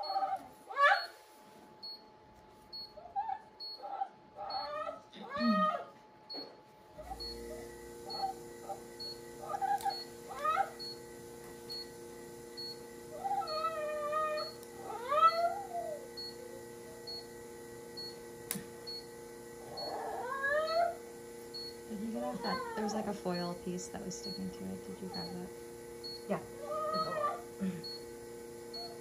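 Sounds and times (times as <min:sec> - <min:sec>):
dog whining: 0:00.0 - 0:01.2, 0:02.9 - 0:06.0, 0:09.4 - 0:10.8, 0:13.1 - 0:16.4, 0:19.6 - 0:21.0, 0:22.1 - 0:23.0, 0:26.6 - 0:28.0, 0:28.7 - 0:29.0.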